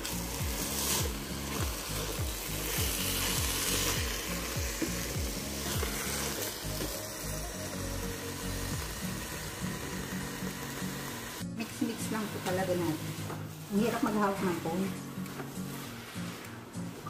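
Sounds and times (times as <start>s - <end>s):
meat sizzling in a pan: 0.0s - 14.6s
spatula stirring: 11.9s - 17.0s.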